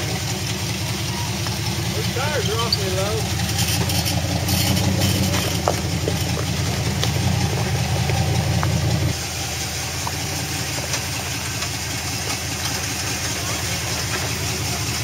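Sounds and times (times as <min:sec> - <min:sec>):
engine rumbling at low revs: 0:00.0 - 0:15.0.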